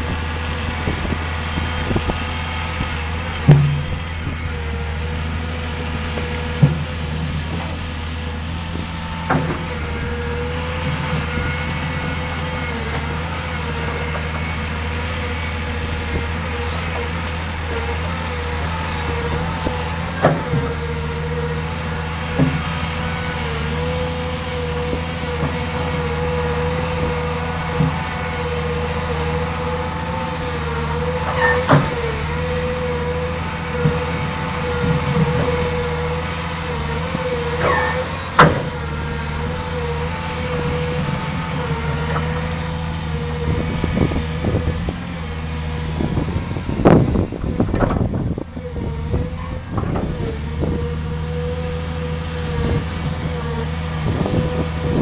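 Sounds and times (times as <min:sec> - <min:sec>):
excavator diesel engine running: 0:00.0 - 0:55.0
sharp knocks: 0:03.4 - 0:04.0.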